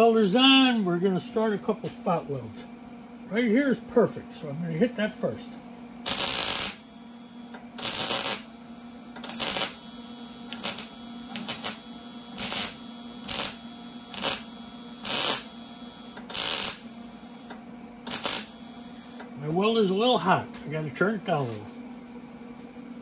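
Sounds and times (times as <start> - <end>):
welder low hum: 0.0 - 22.7
welding arc crackling: 6.0 - 19.2.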